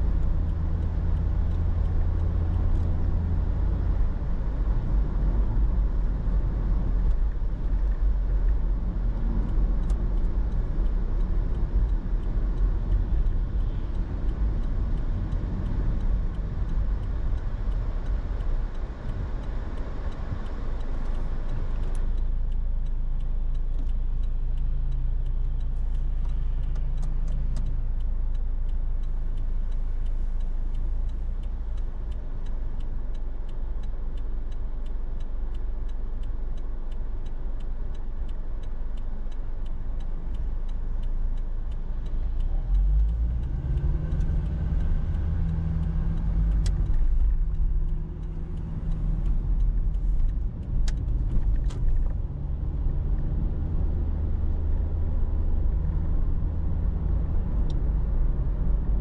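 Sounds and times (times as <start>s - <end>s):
car engine and tyre rumble: 0.0s - 59.0s
regular ticking: 0.0s - 59.0s.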